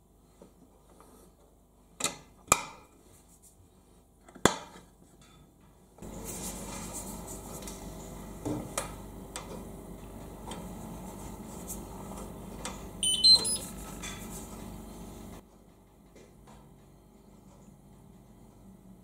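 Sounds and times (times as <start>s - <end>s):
short electronic beeps: 13.0s - 13.7s.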